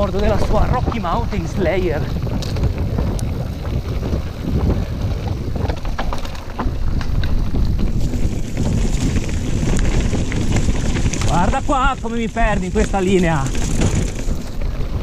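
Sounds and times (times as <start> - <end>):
bike clicks and rattles: 0.0 - 15.0
bike tyres rumbling on rough trail: 0.0 - 15.0
wind buffeting microphone: 0.0 - 15.0.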